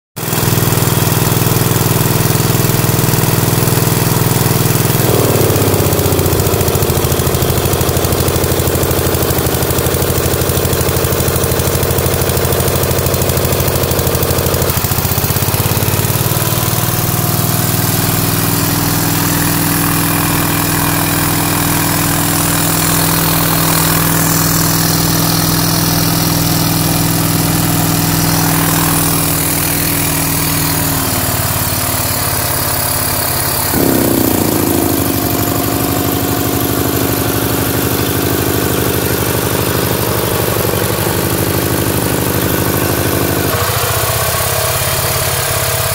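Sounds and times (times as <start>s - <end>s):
air compressor engine rumbling: 4.2s - 8.9s, 18.0s - 32.7s, 33.7s - 39.6s.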